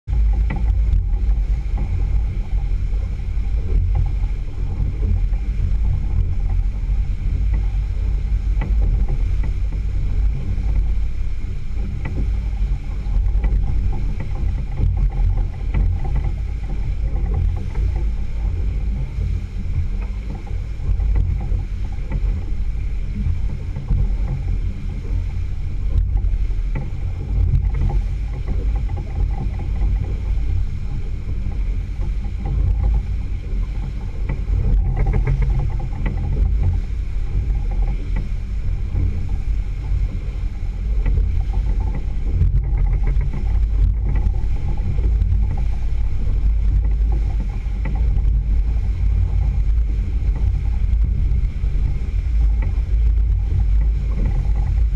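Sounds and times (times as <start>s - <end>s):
outboard motor running: 0.0s - 54.9s
wind rumble on microphone: 0.0s - 54.9s
water rushing past hull: 0.1s - 54.9s.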